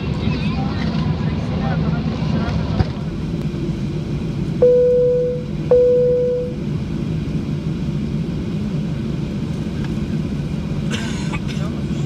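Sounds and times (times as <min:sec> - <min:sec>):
aircraft cabin rumble: 0:00.0 - 0:12.0
two-tone cabin chime: 0:04.6 - 0:06.6.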